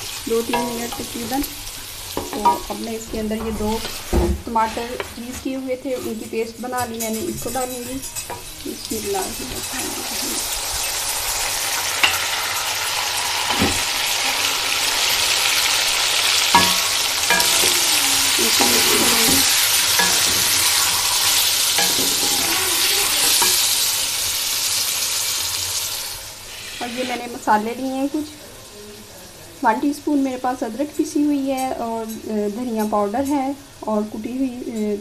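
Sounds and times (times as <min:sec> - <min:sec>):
paste sizzling in hot oil: 0:06.0 - 0:28.2
spatula knocking against pan: 0:16.5 - 0:17.8.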